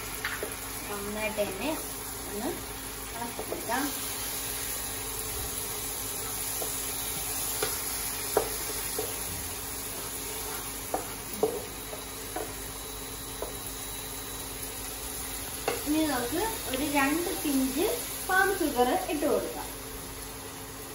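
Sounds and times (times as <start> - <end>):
vegetables sizzling in frying pan: 0.0 - 20.9
spatula knocking and scraping pan: 3.3 - 3.8, 6.2 - 9.3, 9.9 - 12.6, 15.6 - 15.9.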